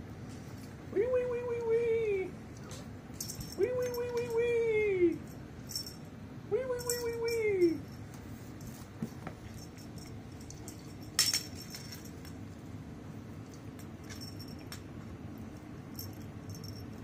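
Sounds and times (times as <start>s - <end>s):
low steady hum: 0.0s - 17.0s
cat collar jingling: 3.1s - 6.1s, 6.8s - 12.6s, 13.4s - 17.0s.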